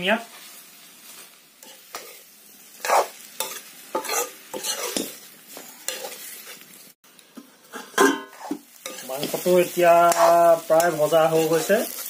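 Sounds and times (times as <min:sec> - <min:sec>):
food sizzling: 0:00.0 - 0:12.0
metal spoon scraping wok: 0:01.6 - 0:06.7, 0:07.7 - 0:09.5, 0:10.1 - 0:12.0.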